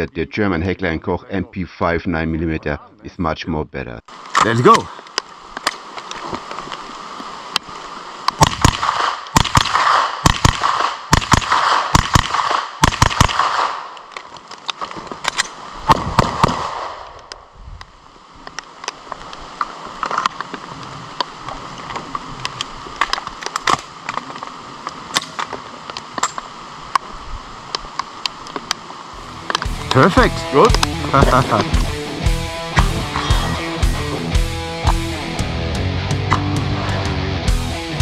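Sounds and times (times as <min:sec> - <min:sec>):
pistol shots: 0:08.4 - 0:13.9, 0:15.9 - 0:17.0
submachine gun firing: 0:08.4 - 0:13.9.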